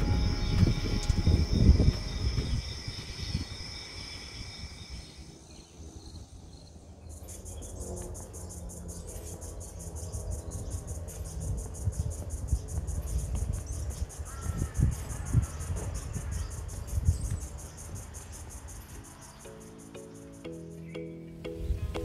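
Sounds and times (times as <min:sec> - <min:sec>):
insects trilling: 0:00.0 - 0:21.0
insects pulsing chirps: 0:00.0 - 0:22.0.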